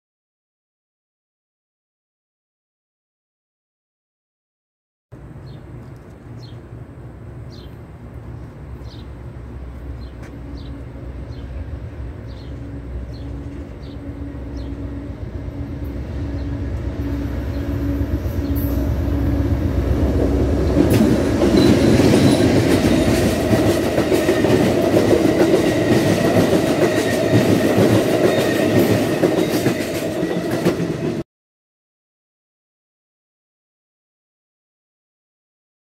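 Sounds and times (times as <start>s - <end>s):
approaching train rumble: 5.1s - 31.2s
train wheels on rails: 5.7s - 31.2s.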